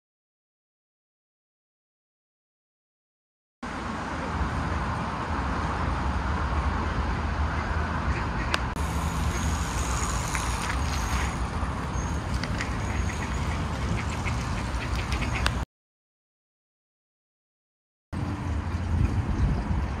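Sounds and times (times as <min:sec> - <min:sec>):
distant road traffic rumble: 0:03.6 - 0:15.6, 0:18.2 - 0:20.0.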